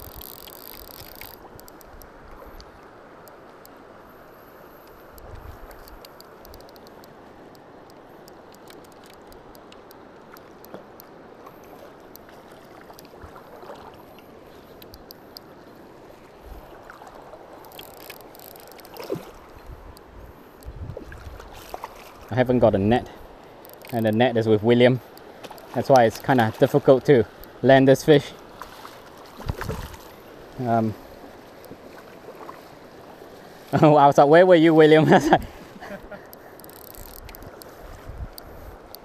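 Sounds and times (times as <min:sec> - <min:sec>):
river water rushing: 0:00.0 - 0:38.0
faint clicks from gear: 0:04.8 - 0:11.1, 0:14.7 - 0:15.5, 0:36.2 - 0:39.0.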